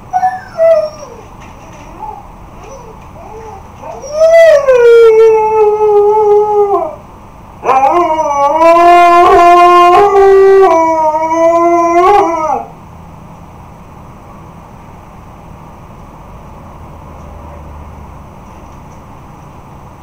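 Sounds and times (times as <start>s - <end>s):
dog howling: 0.0s - 7.0s, 7.6s - 12.7s.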